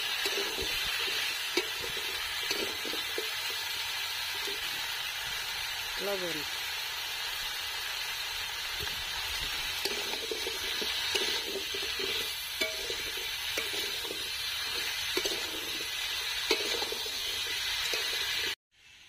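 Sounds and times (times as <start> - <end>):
metal spatula scraping pan: 0.0 - 3.3, 9.8 - 18.6
vegetables sizzling in hot oil: 0.0 - 19.0.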